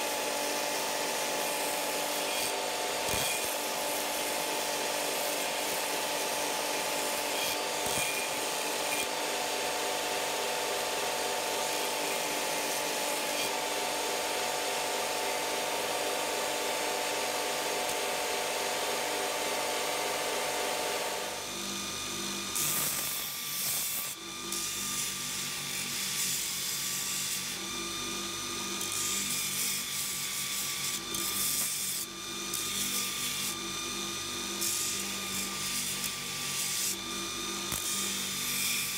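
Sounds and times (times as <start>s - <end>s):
belt grinder whining: 0.0s - 38.9s
steel grinding against belt: 1.6s - 9.1s.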